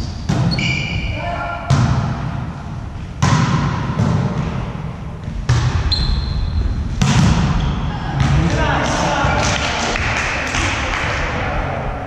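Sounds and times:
volleyball hits echoing: 0:00.1 - 0:06.0, 0:06.9 - 0:11.4
high squeak: 0:00.5 - 0:01.2.

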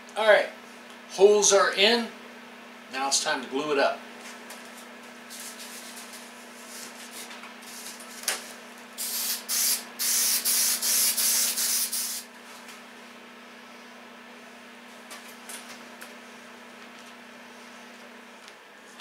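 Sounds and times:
aerosol spray can hissing: 0:09.0 - 0:12.3.

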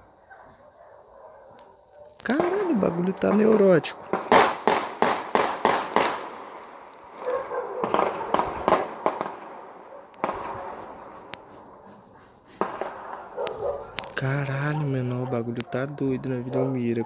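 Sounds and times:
distant gunfire with echoes: 0:02.3 - 0:14.1.

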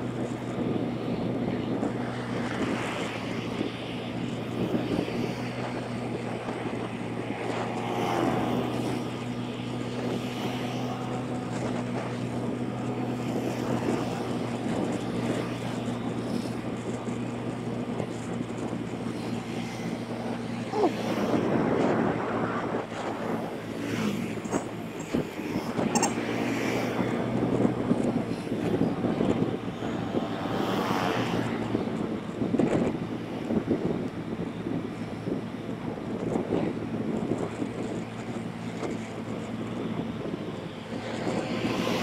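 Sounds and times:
motorbike engine cruising: 0:00.0 - 0:42.0
wind and road noise: 0:00.0 - 0:42.0.

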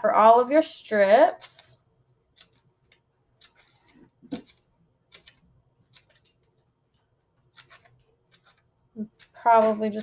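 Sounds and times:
scissors snipping paper: 0:02.3 - 0:06.5, 0:07.5 - 0:10.0.

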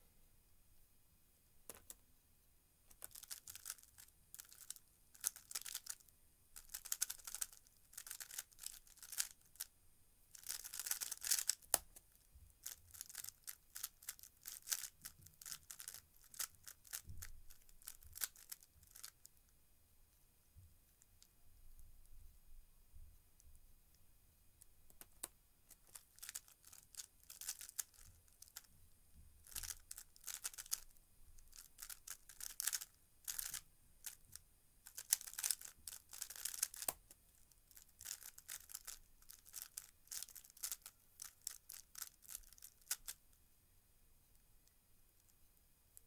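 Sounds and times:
puzzle cube layers clicking: 0:06.6 - 0:09.4, 0:31.6 - 0:34.2.

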